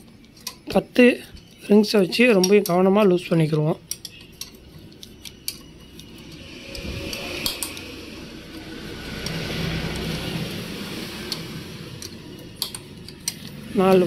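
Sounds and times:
vehicle engine passing by: 0:05.8 - 0:14.0
light metallic spanner clicks: 0:11.2 - 0:14.0.

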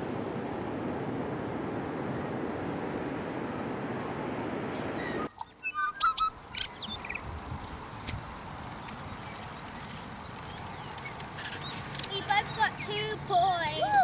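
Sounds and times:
surf breaking on beach: 0:00.0 - 0:05.3
birds chirping and squawking: 0:04.8 - 0:13.2.

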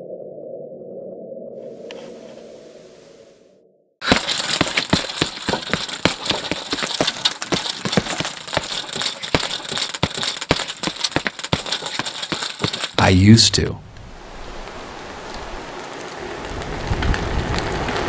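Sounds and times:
dense rattling clicks and knocks: 0:04.0 - 0:13.0.

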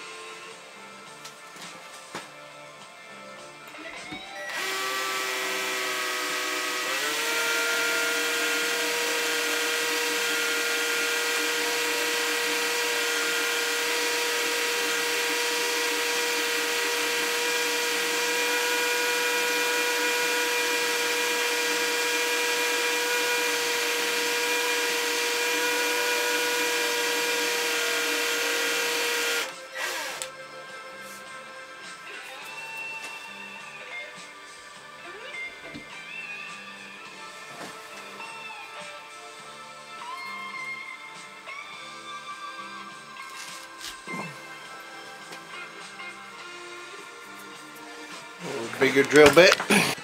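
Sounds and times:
cordless drill motor whine: 0:04.3 - 0:30.3.

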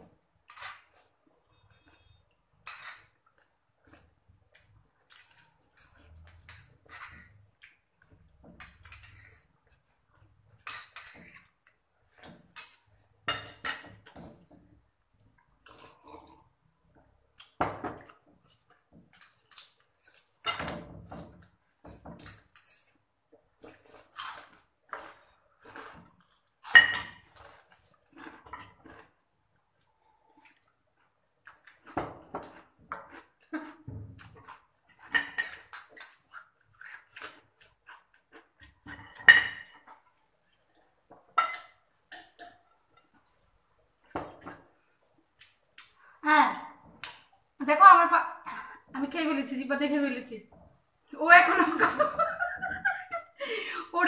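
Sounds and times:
spoons clinking on ceramic plates: 0:02.6 - 0:03.2, 0:05.1 - 0:07.4, 0:10.6 - 0:11.6, 0:41.4 - 0:43.1.

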